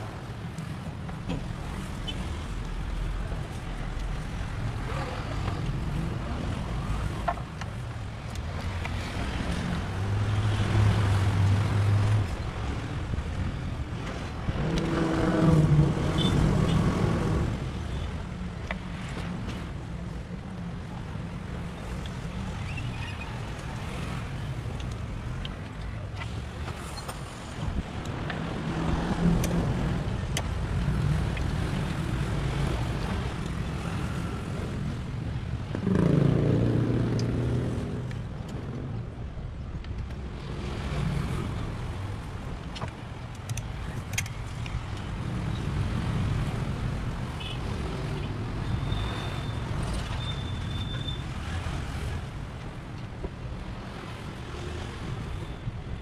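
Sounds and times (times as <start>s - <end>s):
street traffic rumbling: 0.0s - 56.0s
vehicle passing loudly: 35.7s - 38.1s.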